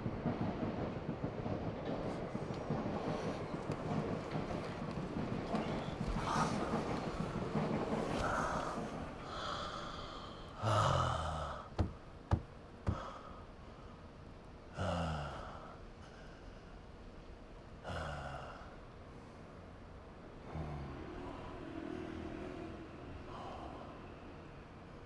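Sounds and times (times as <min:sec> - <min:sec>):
man gasping and breathing heavily: 0:08.2 - 0:11.8, 0:12.9 - 0:13.6.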